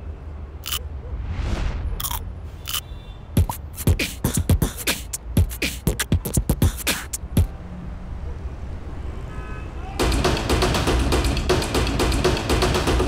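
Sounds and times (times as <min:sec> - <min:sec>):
man beatboxing: 0:03.4 - 0:07.5.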